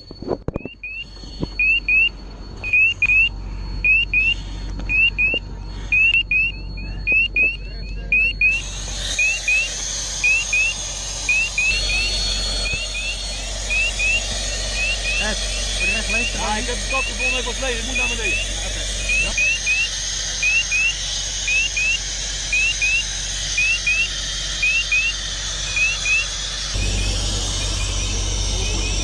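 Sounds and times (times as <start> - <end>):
rising electronic chirps: 0.6 - 29.0
thin steady high tone: 0.7 - 29.0
loud hiss: 8.4 - 29.0.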